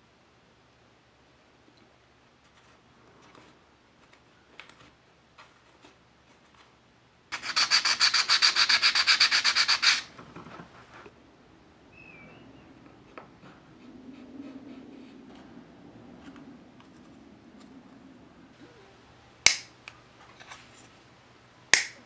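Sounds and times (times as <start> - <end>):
wood being sanded: 7.3 - 10.1
tweezers clicking: 19.4 - 19.7, 21.7 - 22.0.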